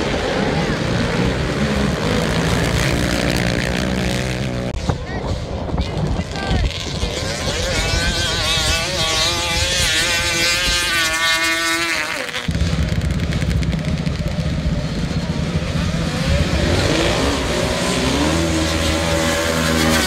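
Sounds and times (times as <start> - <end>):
heavy low engine rumble: 0.0 - 7.2, 12.5 - 16.7
racing engine revving: 0.0 - 20.0.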